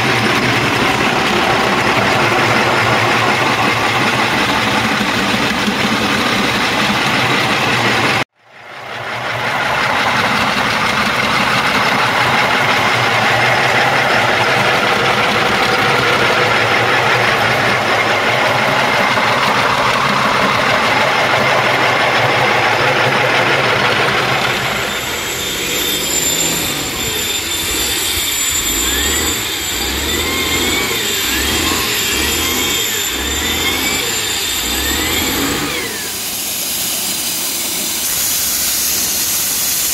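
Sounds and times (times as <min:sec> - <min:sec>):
stone-surfacing machine grinding: 0:00.0 - 0:08.2, 0:09.3 - 0:39.9
angle grinder whining on stone: 0:10.2 - 0:39.9.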